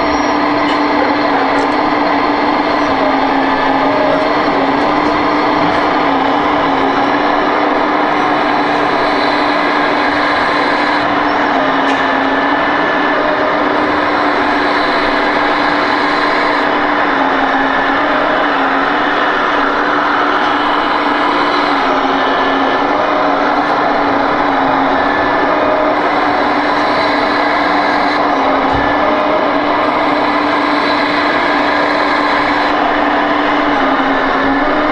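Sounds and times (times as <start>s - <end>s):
diesel engine sound from speaker: 0.0s - 34.9s
steady mechanical hum: 0.0s - 34.9s.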